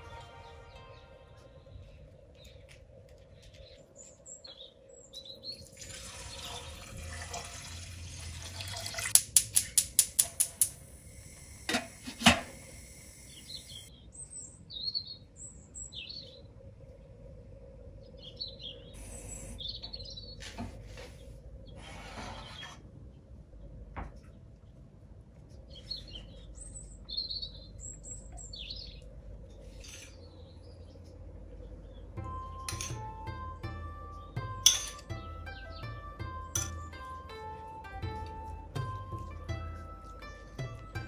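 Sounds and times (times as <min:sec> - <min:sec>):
gas hob igniter clicking: 0:09.1 - 0:10.9
gas rushing hiss: 0:10.5 - 0:13.8
birds chirping: 0:12.6 - 0:16.4, 0:18.0 - 0:21.8, 0:25.7 - 0:41.0.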